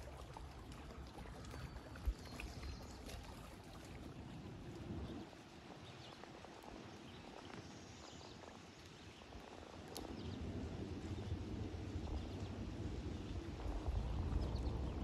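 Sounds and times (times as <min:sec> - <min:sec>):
low rumble: 0:10.0 - 0:15.0.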